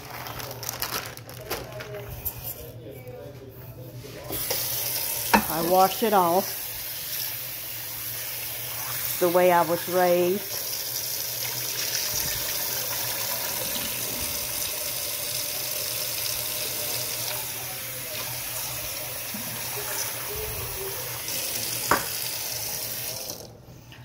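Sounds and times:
faucet running into sink: 0:04.4 - 0:23.6.

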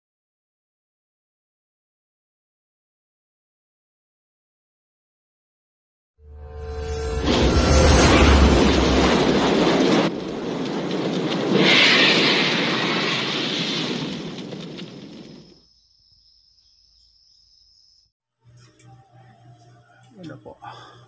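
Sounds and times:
loud rushing noise: 0:06.6 - 0:15.0.

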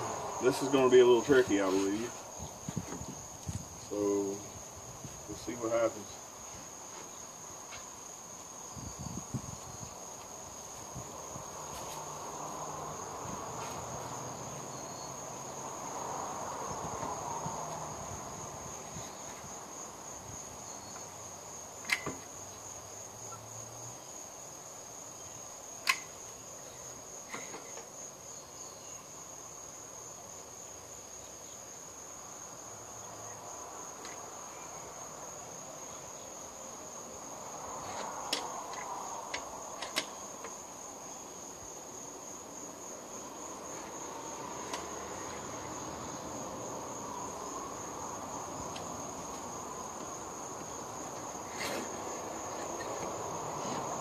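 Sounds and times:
insects trilling: 0:00.0 - 0:54.0.

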